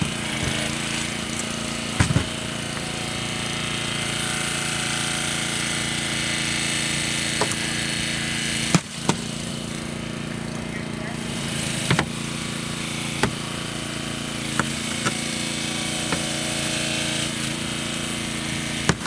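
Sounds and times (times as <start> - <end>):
small petrol engine running: 0.0 - 19.0.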